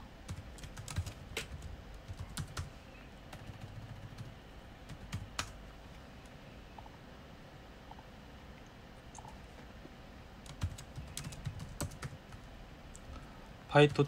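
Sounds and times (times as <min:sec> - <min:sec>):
keyboard keys clicking: 0:00.3 - 0:02.7, 0:10.4 - 0:12.4.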